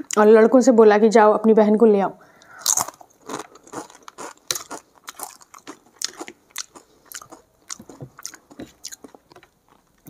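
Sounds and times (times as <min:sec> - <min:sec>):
chewing mouth clicks and smacks: 0:02.7 - 0:09.5.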